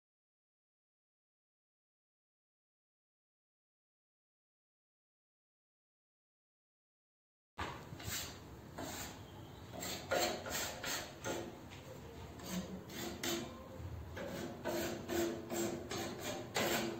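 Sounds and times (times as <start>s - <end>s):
sanding plaster rasping: 8.0s - 11.5s, 12.4s - 13.5s, 14.2s - 16.9s.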